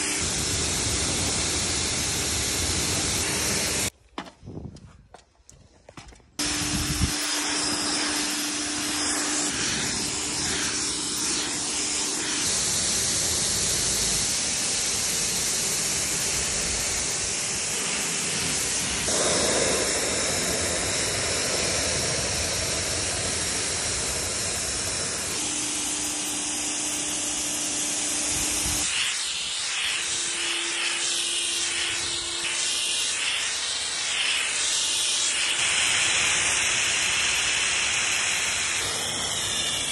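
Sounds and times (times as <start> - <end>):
pressure washer jet spraying: 0.0 - 3.9, 6.4 - 39.9
steady low hum: 15.4 - 28.9.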